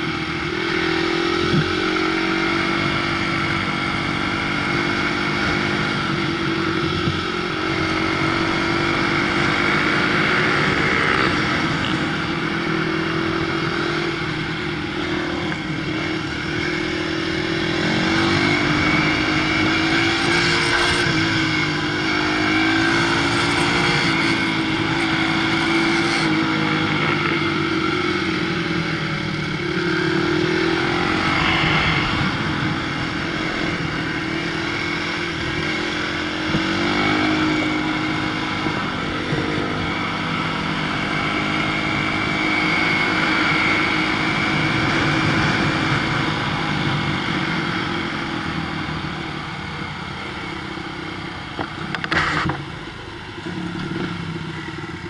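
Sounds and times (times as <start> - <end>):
motorcycle engine revving: 0.0 - 55.0
wind noise: 28.7 - 49.0.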